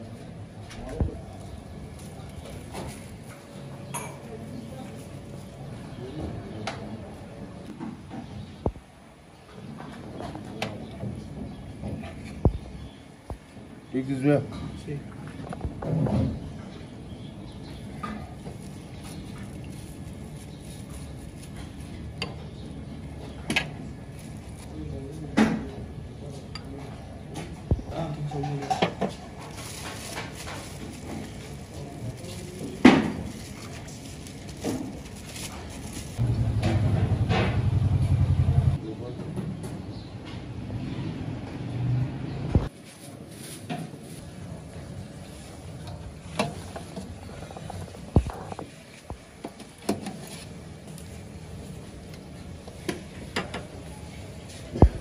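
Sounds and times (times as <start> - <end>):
low engine rumble: 30.6 - 39.1.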